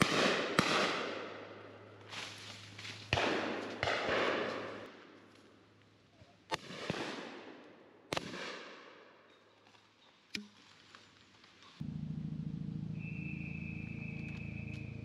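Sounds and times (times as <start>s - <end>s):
shotgun shots echoing: 0.0s - 1.8s, 3.1s - 5.0s, 6.5s - 9.1s.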